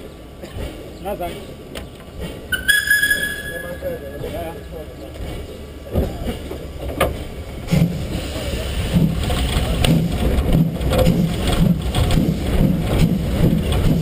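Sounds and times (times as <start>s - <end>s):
steam locomotive exhaust chuffs: 7.2s - 14.0s.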